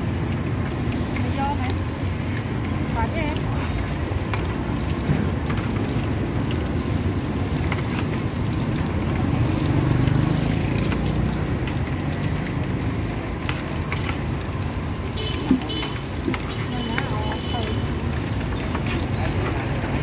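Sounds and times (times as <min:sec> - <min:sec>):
low rumble of traffic: 0:00.0 - 0:20.0
vehicle passing: 0:06.1 - 0:20.0.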